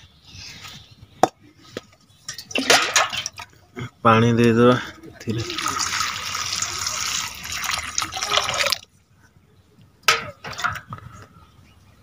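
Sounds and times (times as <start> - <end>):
water splashing into metal bowl: 5.4 - 8.8.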